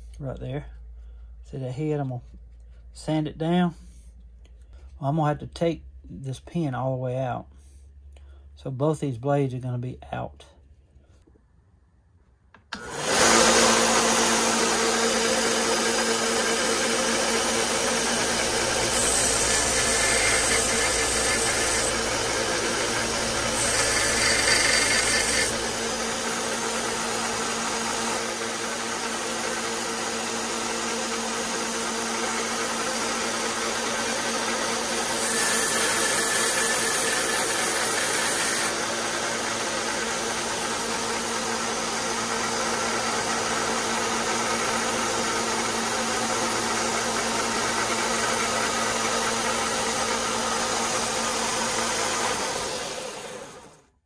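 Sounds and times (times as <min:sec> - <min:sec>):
belt sander motor hum: 0:12.7 - 0:53.8
metal grinding on sanding belt: 0:13.3 - 0:28.2, 0:33.9 - 0:40.6.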